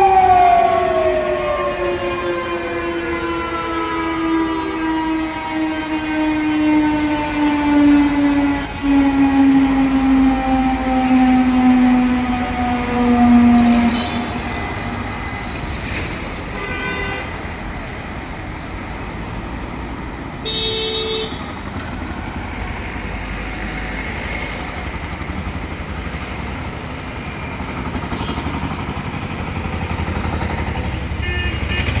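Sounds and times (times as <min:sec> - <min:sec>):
siren: 0:00.0 - 0:19.3
traffic rumble: 0:00.0 - 0:32.0
car horns: 0:12.8 - 0:15.6, 0:16.4 - 0:17.7, 0:20.4 - 0:21.6, 0:31.1 - 0:32.0.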